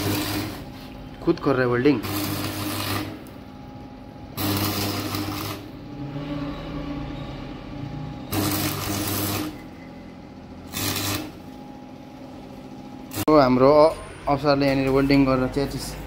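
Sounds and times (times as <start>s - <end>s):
welding arc crackle: 0.0s - 0.8s, 1.8s - 3.4s, 4.3s - 5.8s, 8.3s - 9.6s, 10.7s - 11.6s, 13.1s - 13.4s
electrical buzz: 0.0s - 16.0s.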